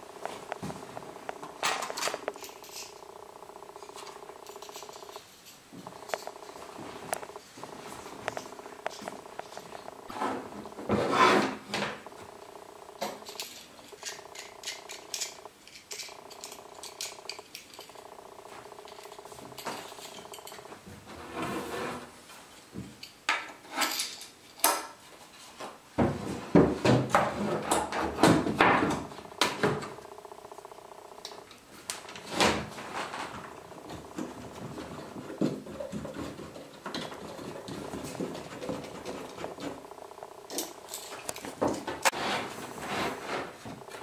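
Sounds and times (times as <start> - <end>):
steady hum: 0.0 - 20.8, 28.4 - 44.0
wooden boards knocking and clattering: 26.0 - 30.0.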